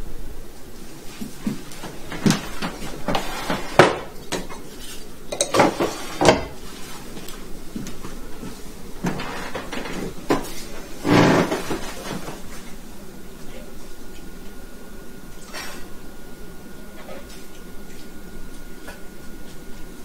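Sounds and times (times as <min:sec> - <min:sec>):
objects clattering: 0:09.0 - 0:12.4.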